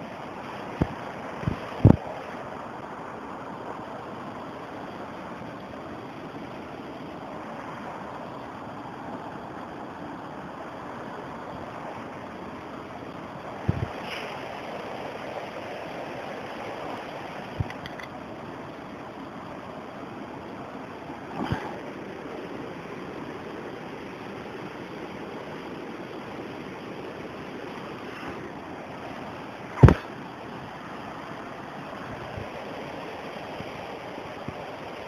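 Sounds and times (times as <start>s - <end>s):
dull thumps: 29.8s - 30.1s.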